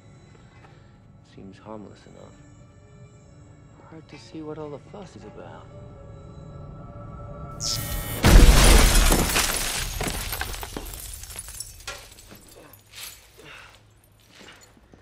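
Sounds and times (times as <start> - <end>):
loud explosion blast: 7.6 - 10.0
glass shattering: 7.6 - 13.4
falling debris clatter: 8.2 - 12.6.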